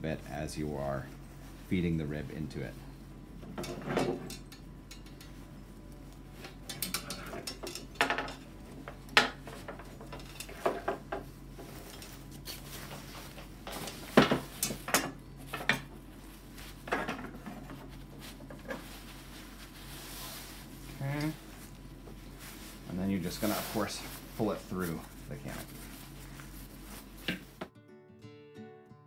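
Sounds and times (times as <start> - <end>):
metal ribs clinking and scraping: 3.5 - 5.4, 6.4 - 15.9.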